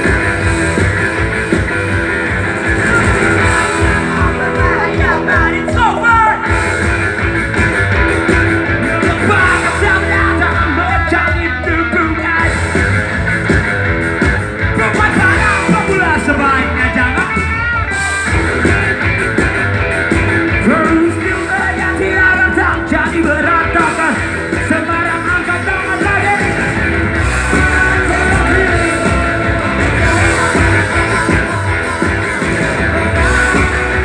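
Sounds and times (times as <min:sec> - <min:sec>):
drums: 0:00.0 - 0:34.0
electric guitars: 0:00.0 - 0:34.0
heavy bass: 0:00.0 - 0:34.0
person singing: 0:24.8 - 0:34.0.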